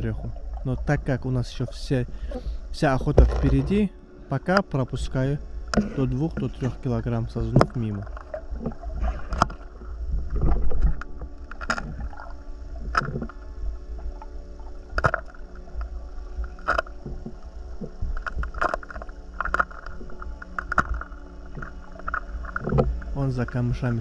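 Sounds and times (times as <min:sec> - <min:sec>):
underwater rumble of water: 0:00.0 - 0:24.0
underwater clicks and knocks: 0:03.1 - 0:03.8, 0:05.7 - 0:06.7, 0:07.4 - 0:13.4, 0:14.9 - 0:23.6.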